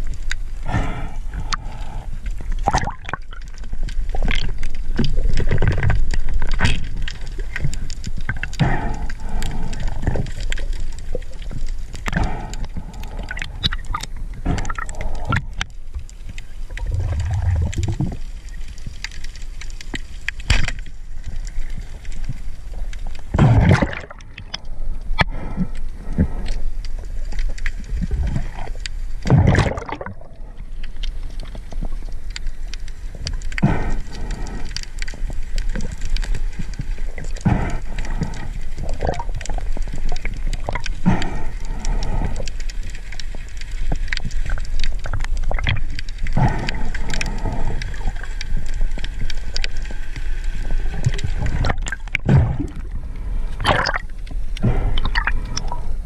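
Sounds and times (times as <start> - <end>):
water gurgling and sloshing: 0.0 - 56.0
underwater whooshes: 16.8 - 18.0.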